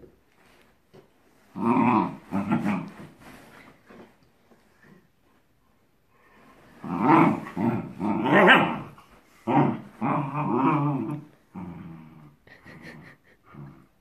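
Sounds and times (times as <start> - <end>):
dogs play-growling: 1.5 - 3.5, 6.7 - 14.0.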